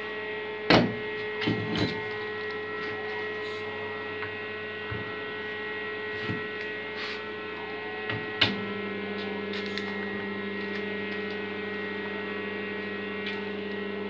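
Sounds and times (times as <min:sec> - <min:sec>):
transformer mains hum: 0:00.0 - 0:14.0.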